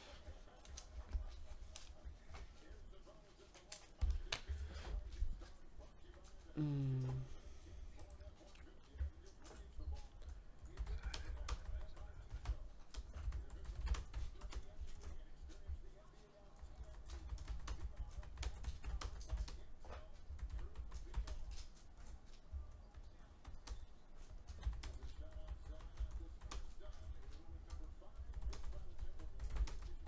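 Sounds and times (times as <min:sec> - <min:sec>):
computer keyboard typing: 0:10.6 - 0:15.6, 0:16.8 - 0:22.1, 0:22.9 - 0:30.0.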